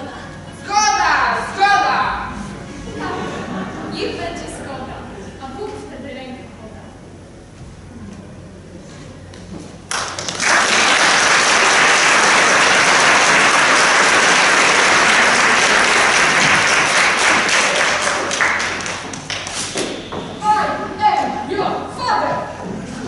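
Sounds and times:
audience applauding: 0:09.9 - 0:19.6.

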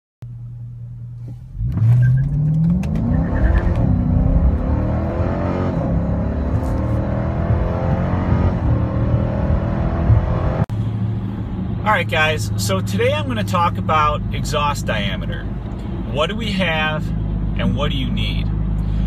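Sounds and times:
car engine accelerating: 0:00.5 - 0:11.8.

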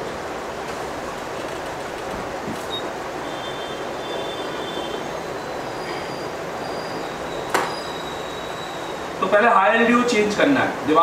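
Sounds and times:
faint high whine: 0:02.6 - 0:10.8.

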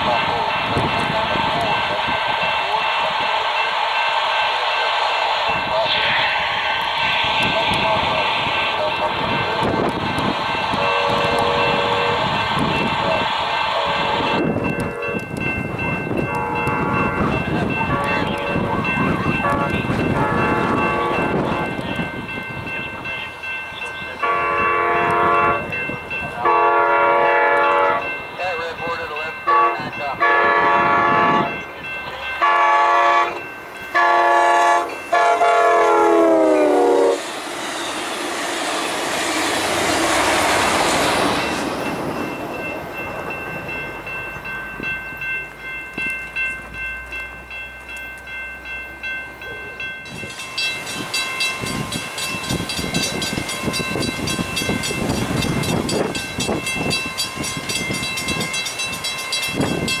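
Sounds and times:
wind buffeting microphone: 0:00.0 - 0:03.5, 0:05.2 - 0:26.6, 0:29.8 - 0:32.1, 0:50.0 - 1:00.0
train rushing past: 0:00.0 - 1:00.0
locomotive air horn: 0:10.8 - 0:12.4, 0:13.7 - 0:15.2, 0:19.4 - 0:21.6, 0:24.2 - 0:25.7, 0:26.4 - 0:28.1, 0:29.5 - 0:31.6, 0:32.4 - 0:33.4, 0:34.0 - 0:37.2.

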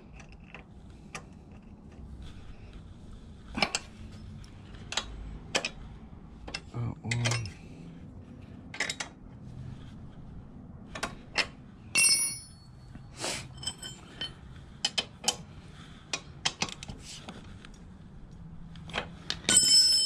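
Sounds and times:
steel hand tools clinking: 0:11.9 - 0:12.7.

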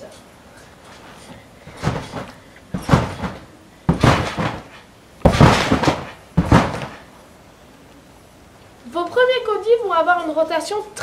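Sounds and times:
trampoline mat thumping: 0:01.2 - 0:07.1.

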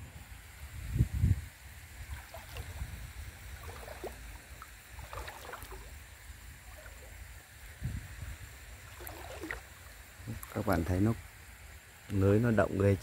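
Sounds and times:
water splashing and dripping: 0:01.9 - 0:07.8, 0:08.6 - 0:11.1.

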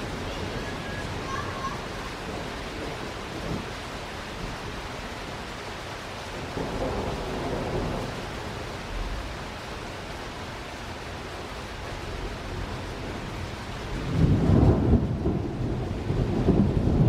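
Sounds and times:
thunder rumbling: 0:00.0 - 0:05.0, 0:06.2 - 0:09.6, 0:11.9 - 0:17.0
steady rain: 0:00.0 - 0:17.0.

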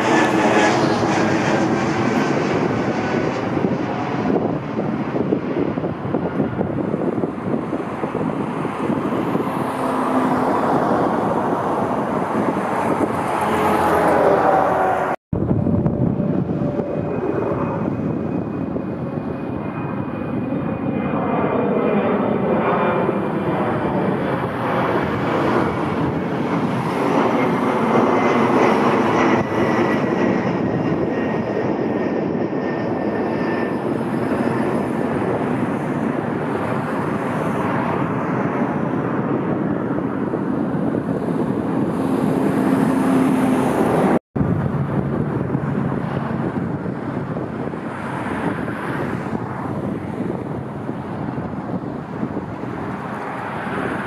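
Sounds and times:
jet airliner passing: 0:00.0 - 0:54.0.

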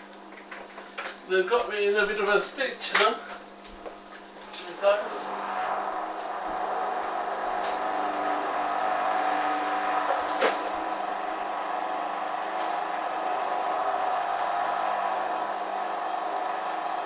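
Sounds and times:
washing machine spinning: 0:03.5 - 0:17.0.

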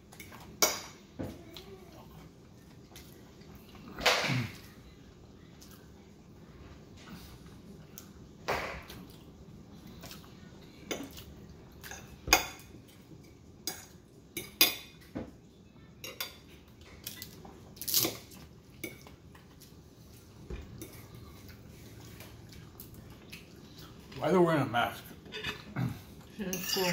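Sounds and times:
tableware clinking: 0:26.4 - 0:26.9.

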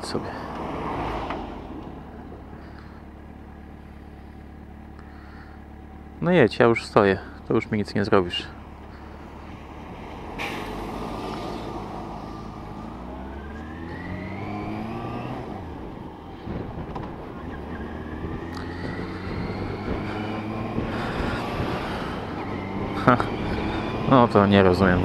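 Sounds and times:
motorcycle engine accelerating: 0:08.6 - 0:25.0.

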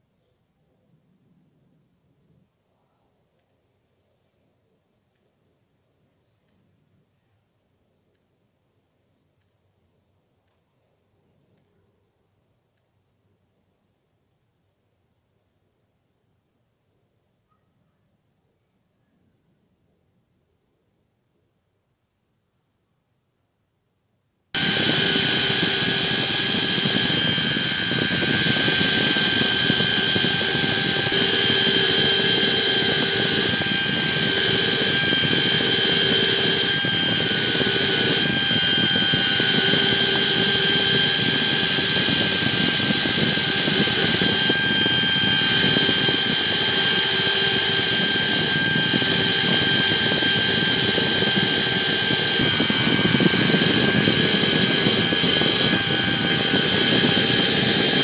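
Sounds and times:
electric drill whining: 0:24.6 - 0:58.0.

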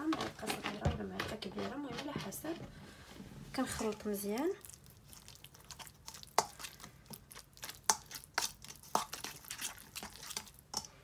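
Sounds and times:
spoon clinking and scraping bowl: 0:07.6 - 0:11.0.

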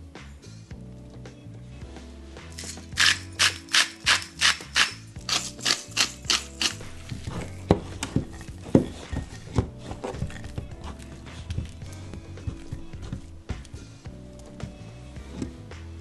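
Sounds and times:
salt mill grinding: 0:02.6 - 0:07.3.

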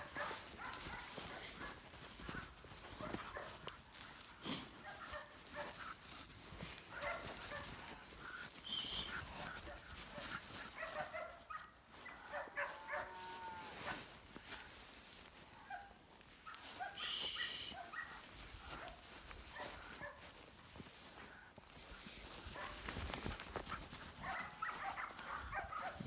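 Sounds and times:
puppy yipping and barking: 0:24.2 - 0:26.0.

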